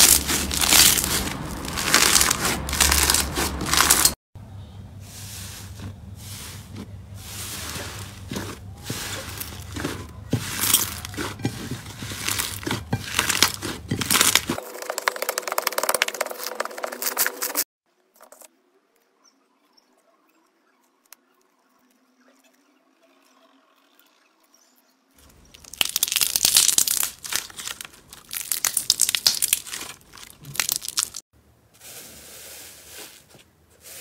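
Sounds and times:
slime crackling and popping: 0.0 - 4.2, 12.2 - 14.6, 25.5 - 31.2.

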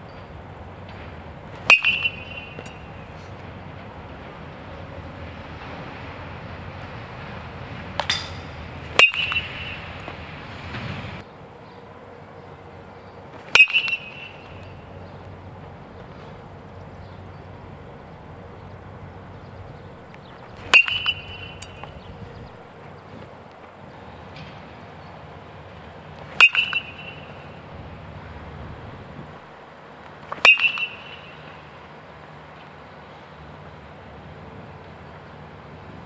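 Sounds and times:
metal bat hitting balls: 1.5 - 3.3, 7.9 - 10.2, 13.4 - 15.1, 20.0 - 22.6, 26.1 - 27.8, 30.0 - 31.8.

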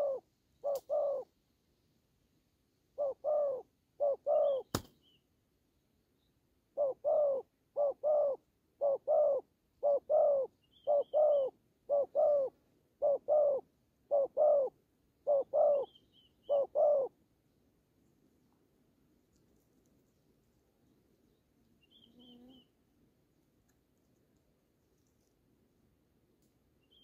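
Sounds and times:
dove cooing: 0.0 - 1.3, 3.0 - 4.8, 6.8 - 17.2.

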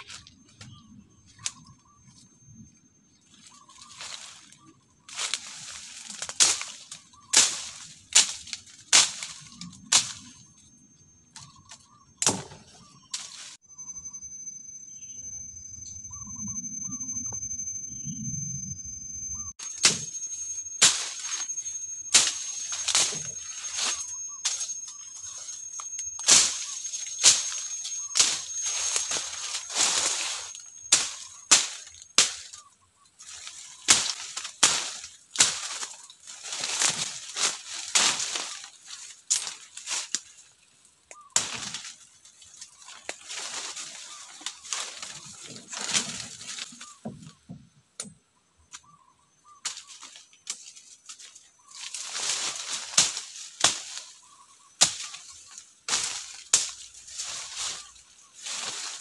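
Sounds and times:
leaves rustling: 3.2 - 10.7, 11.3 - 13.6, 19.4 - 47.0, 49.6 - 59.0
machete chopping undergrowth: 6.2 - 10.2, 12.2 - 12.6, 19.6 - 32.6, 33.4 - 38.7, 41.4 - 42.0, 49.6 - 59.0.

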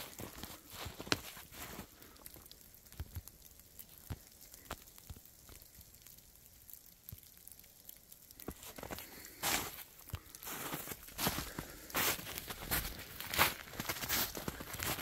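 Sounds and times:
footsteps on dry brush: 0.0 - 1.9, 8.5 - 15.0.

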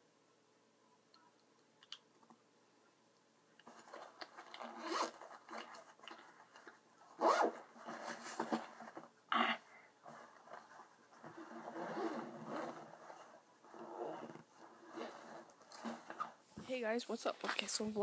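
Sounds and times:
rustling and rasping handling: 3.6 - 9.2, 10.0 - 18.0.

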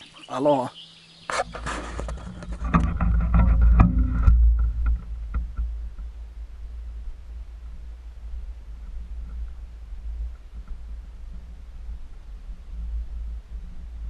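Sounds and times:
camera handling rumble: 1.3 - 6.0
knocks and rubs: 1.3 - 6.2.

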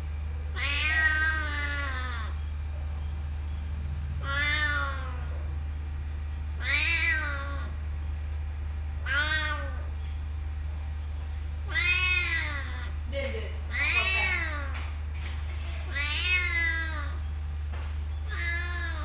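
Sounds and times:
steady low hum: 0.0 - 19.0
cat meowing: 0.5 - 2.4, 4.2 - 5.4, 6.6 - 7.8, 9.0 - 9.9, 11.6 - 13.0, 13.7 - 14.8, 15.8 - 17.2, 18.2 - 19.0.

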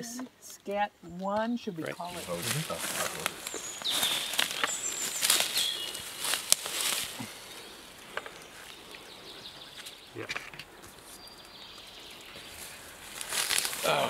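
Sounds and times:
woodland ambience: 0.0 - 14.0
strap rustling: 2.0 - 8.8, 12.4 - 14.0.

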